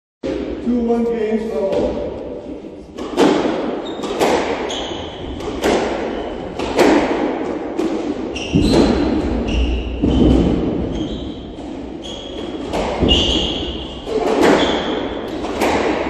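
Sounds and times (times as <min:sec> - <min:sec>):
squash ball hitting racket and wall: 0:00.2 - 0:00.6, 0:01.6 - 0:16.0
shoes squeaking on wooden floor: 0:03.8 - 0:05.4, 0:08.3 - 0:15.0.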